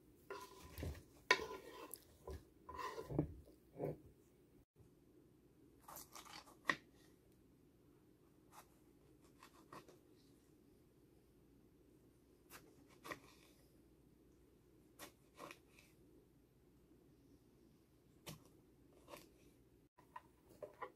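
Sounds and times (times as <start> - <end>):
knife slicing tomato on board: 0.3 - 4.0.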